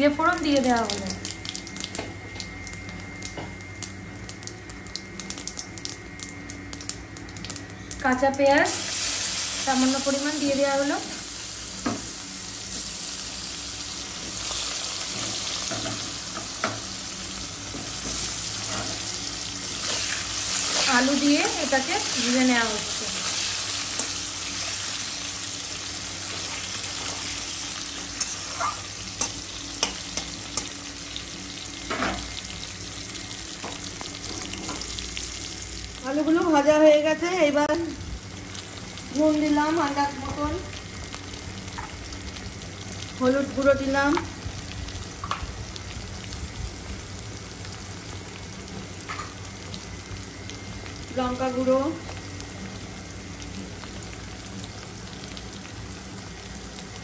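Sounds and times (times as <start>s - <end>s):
potatoes sizzling in oil: 0.0s - 57.0s.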